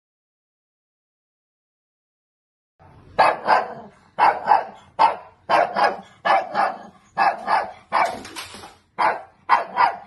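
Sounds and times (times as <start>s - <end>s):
dog barking sharply: 3.2s - 10.0s.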